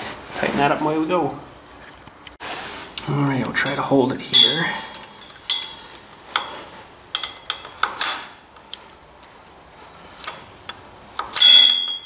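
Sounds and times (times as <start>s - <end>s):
wrenches clicking on metal: 4.4s - 8.8s, 10.1s - 12.0s.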